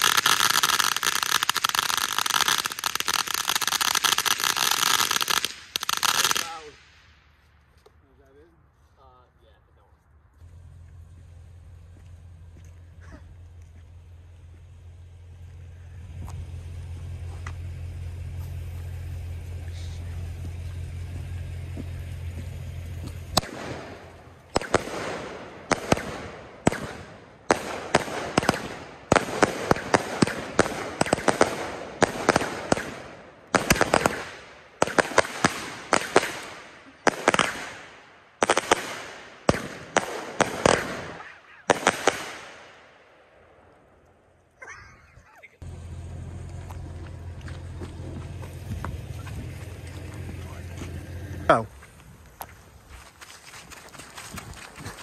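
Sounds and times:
fireworks cracking: 0:00.0 - 0:07.4, 0:10.4 - 0:42.9, 0:43.8 - 0:55.0
steady low hum: 0:06.7 - 0:29.1, 0:45.4 - 0:55.0.

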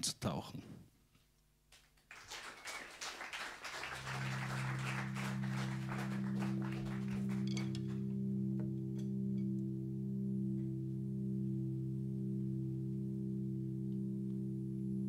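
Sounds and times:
audience applause: 0:02.0 - 0:08.0
low drone of held tones: 0:03.0 - 0:15.0.

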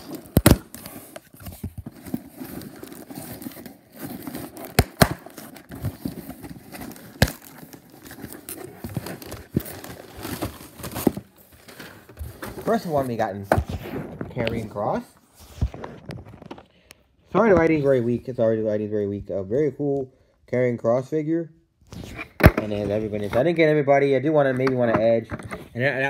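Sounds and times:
packaging crinkling and tearing: 0:00.0 - 0:13.0.

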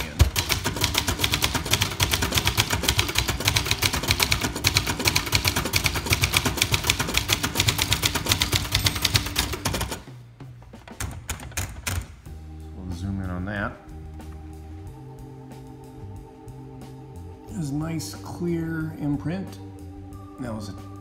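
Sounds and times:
manual typewriter typing: 0:00.0 - 0:10.1, 0:10.8 - 0:12.2.

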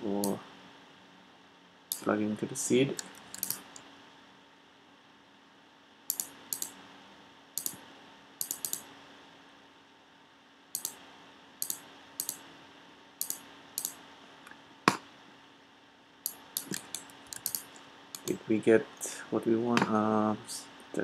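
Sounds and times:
computer mouse clicking: 0:02.9 - 0:03.8, 0:06.1 - 0:06.8, 0:07.6 - 0:07.8, 0:08.4 - 0:08.9, 0:10.8 - 0:11.0, 0:11.6 - 0:12.4, 0:13.2 - 0:14.0, 0:16.3 - 0:18.4.

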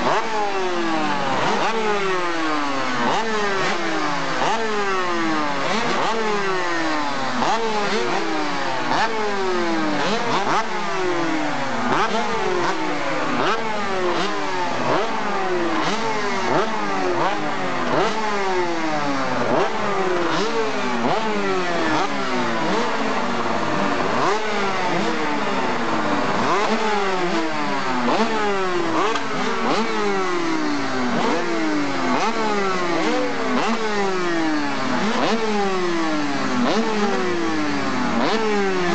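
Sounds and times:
racing engine revving: 0:00.0 - 0:38.9.

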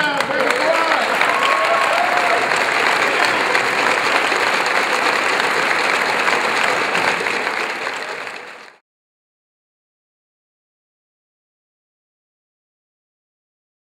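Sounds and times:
group of people clapping: 0:00.0 - 0:08.8.

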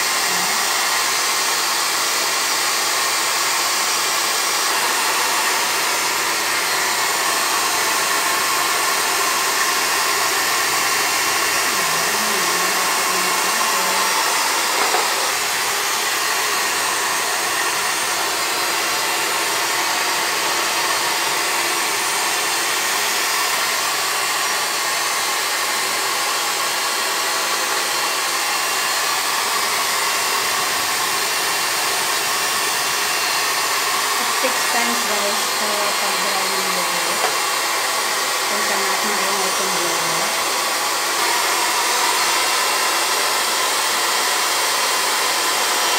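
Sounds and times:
hair dryer blowing: 0:00.0 - 0:45.9.

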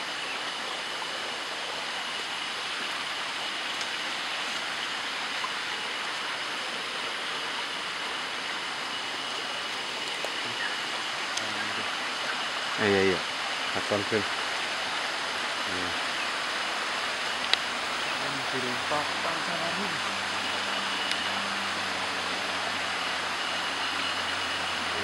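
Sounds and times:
flowing water rushing: 0:00.0 - 0:25.0.

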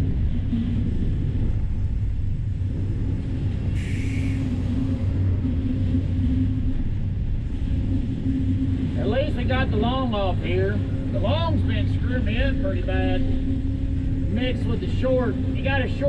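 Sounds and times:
sawmill machinery rumbling: 0:00.0 - 0:16.0
short hiss: 0:03.8 - 0:04.5.

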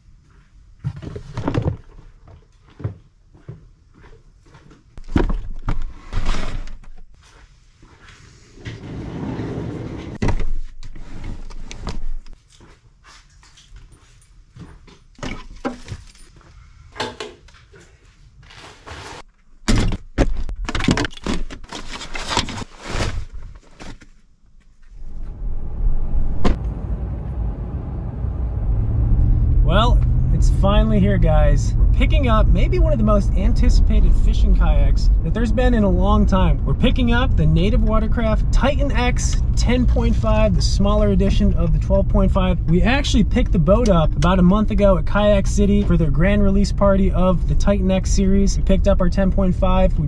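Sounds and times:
door thunks: 0:26.3 - 0:26.6.

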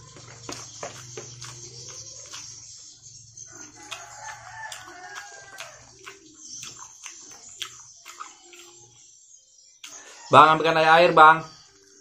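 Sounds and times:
chewing and mouth clicks: 0:00.0 - 0:02.9, 0:03.5 - 0:09.0, 0:09.8 - 0:10.0.

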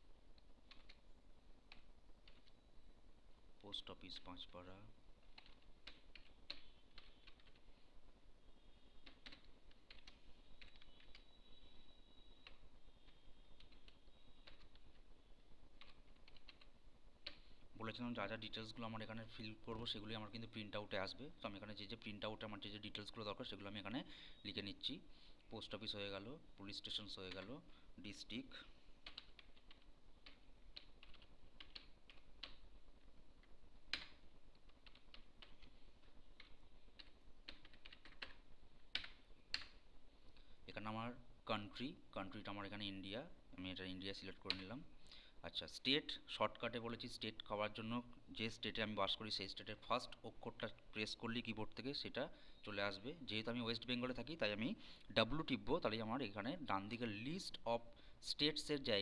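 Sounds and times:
computer keyboard keystrokes: 0:00.7 - 0:01.0, 0:01.7 - 0:02.6, 0:05.3 - 0:07.6, 0:09.0 - 0:11.3, 0:12.4 - 0:15.0, 0:15.8 - 0:17.4, 0:29.0 - 0:32.6, 0:33.9 - 0:35.7, 0:36.4 - 0:39.8.

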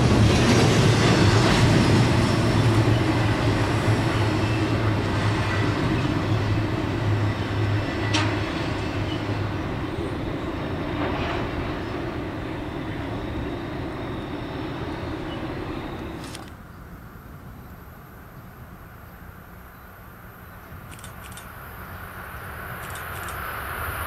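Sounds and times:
train wheels on rails rumbling: 0:00.0 - 0:16.6
sharp click: 0:20.9 - 0:21.5, 0:22.8 - 0:23.4.

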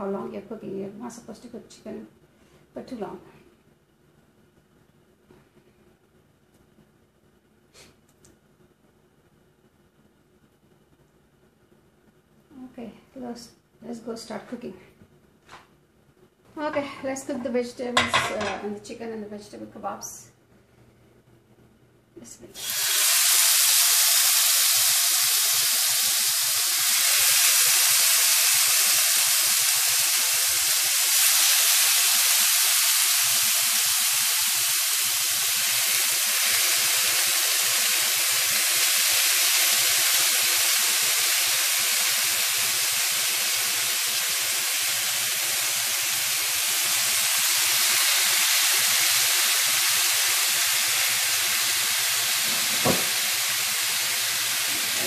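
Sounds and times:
kebabs sizzling on grill pan: 0:22.6 - 0:55.0.

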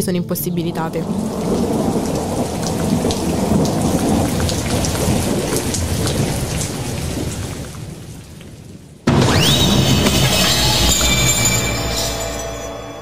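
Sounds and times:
rumbling thunder: 0:00.7 - 0:12.0
steady rain: 0:00.7 - 0:12.5.

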